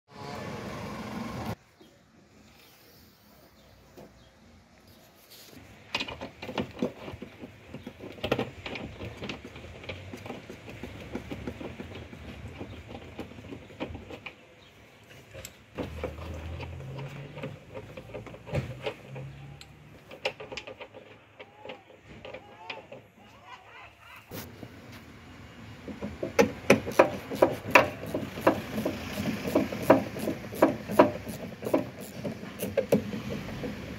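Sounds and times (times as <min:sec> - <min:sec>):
clicks taps and rustling: 0:05.6 - 0:23.3.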